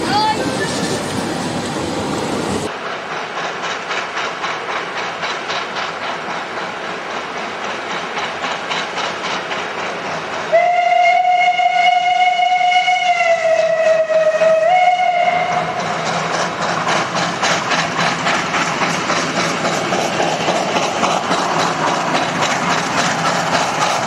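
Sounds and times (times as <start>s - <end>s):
steam locomotive exhaust beats: 0.1s - 24.0s
steam whistle blast: 10.5s - 15.6s.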